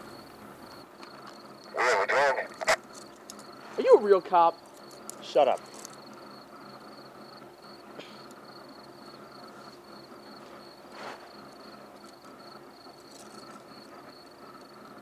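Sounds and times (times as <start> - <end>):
crickets chirping: 0.0 - 15.0
soft rustle: 10.4 - 11.3.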